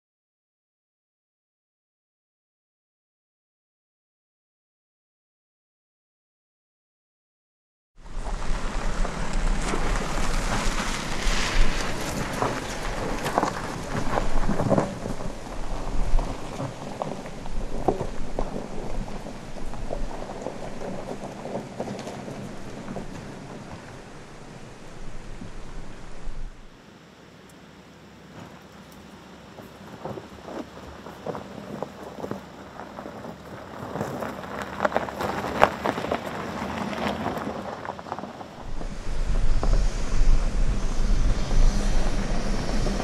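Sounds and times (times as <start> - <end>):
steady low rumble: 8.0 - 26.8, 38.4 - 43.0
tyres crunching on gravel: 8.0 - 26.8, 28.0 - 43.0.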